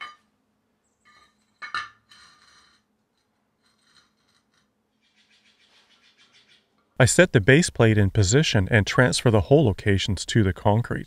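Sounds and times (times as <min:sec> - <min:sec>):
steel plate clanking on concrete: 0:00.0 - 0:00.3, 0:01.1 - 0:02.8
metal scraping across concrete: 0:01.1 - 0:04.7.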